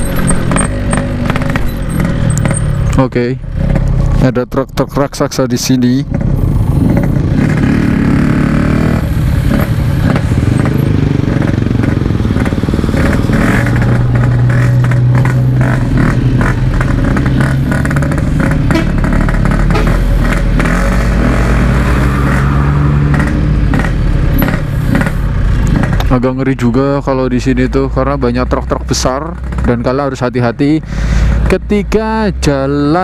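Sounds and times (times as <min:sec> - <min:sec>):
two-stroke motorcycle engine running: 0:00.0 - 0:04.0, 0:09.5 - 0:20.9.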